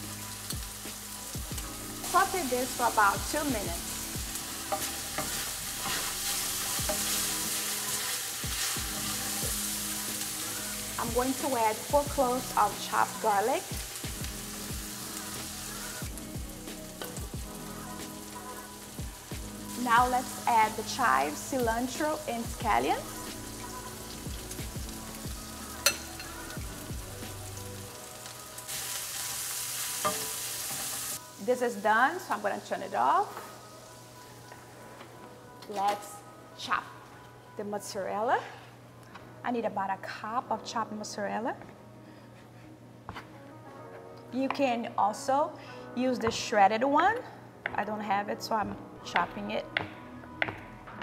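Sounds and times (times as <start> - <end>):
onion and sausage sizzling in oil: 0.0 - 34.7
wooden spatula scraping a pan: 4.7 - 7.2.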